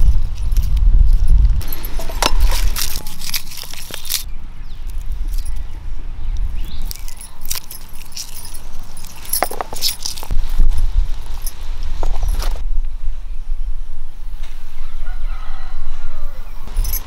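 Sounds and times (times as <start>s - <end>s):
glass bangles clinking: 1.6s - 4.3s, 4.9s - 5.7s, 6.6s - 12.6s, 16.7s - 17.0s.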